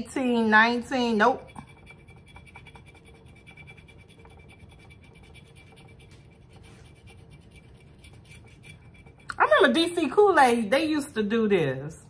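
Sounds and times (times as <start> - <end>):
fingernail scratching paper ticket: 1.0 - 9.7.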